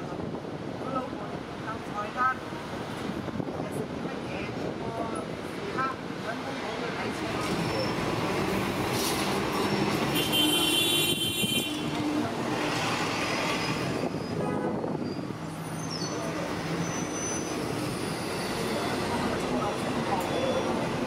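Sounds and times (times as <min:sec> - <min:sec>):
high squeal: 0:15.0 - 0:18.9.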